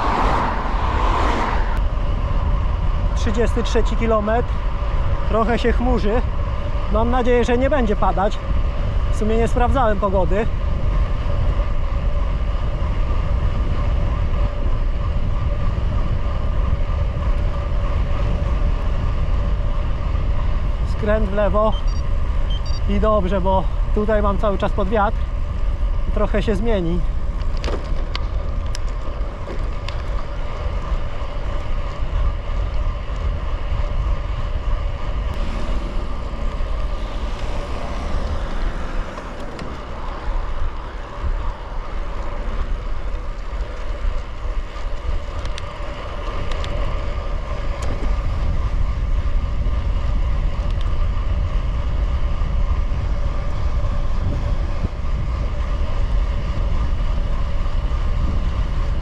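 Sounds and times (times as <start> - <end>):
wind rumbling on microphone: 0.0 - 59.0.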